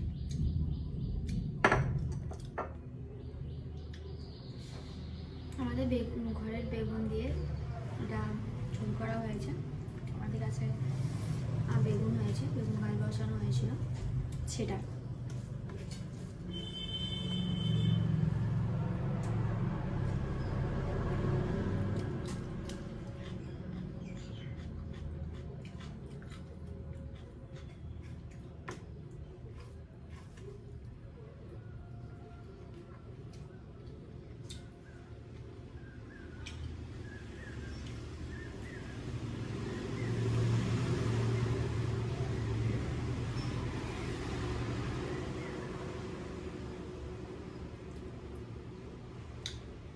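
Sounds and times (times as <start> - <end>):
passing vehicle rumble: 2.9 - 16.5, 17.4 - 27.5, 30.8 - 49.9.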